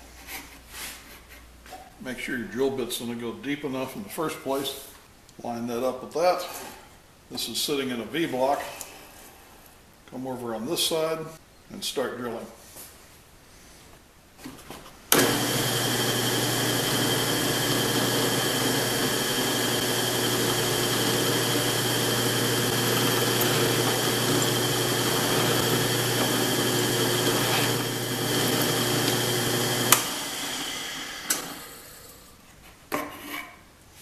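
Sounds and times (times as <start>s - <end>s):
drill press humming: 15.1s - 32.3s
drill press switch click: 31.2s - 31.6s.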